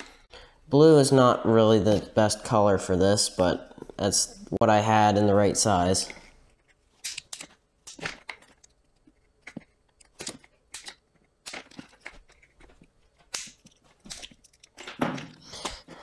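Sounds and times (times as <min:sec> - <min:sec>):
handling of tubing: 0:06.1 - 0:16.0.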